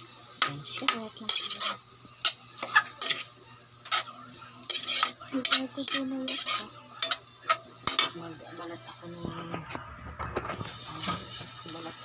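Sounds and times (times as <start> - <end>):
meat sizzling: 0.0 - 12.0
metal ladle scraping a wok: 1.3 - 4.1, 4.7 - 8.2.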